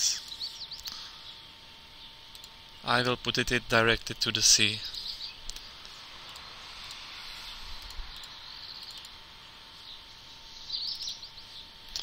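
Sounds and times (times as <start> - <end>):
faint bird chirps: 0.0 - 2.4, 4.6 - 12.0
low microphone hiss: 0.0 - 12.0
computer mouse click: 2.3 - 2.6, 7.8 - 9.2.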